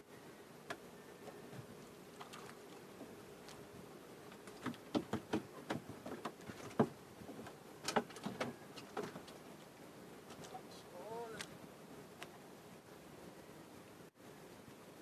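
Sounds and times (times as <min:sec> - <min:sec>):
fish and handline knocking in boat: 0:04.4 - 0:09.3.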